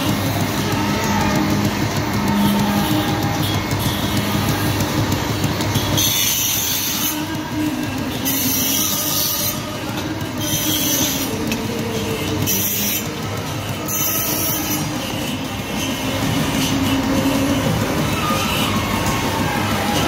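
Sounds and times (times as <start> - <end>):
slate-cutting machine running: 0.0 - 20.0
harsh high screech of cutting: 13.7 - 20.0.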